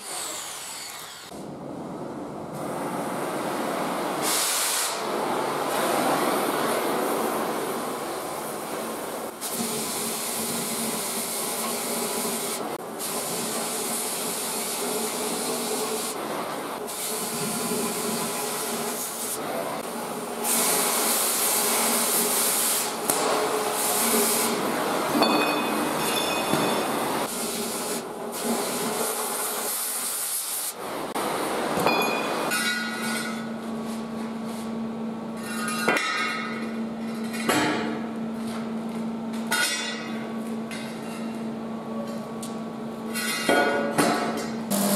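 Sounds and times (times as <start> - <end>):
welding arc crackling and hissing: 0.0 - 1.6, 2.6 - 26.2, 26.8 - 31.6.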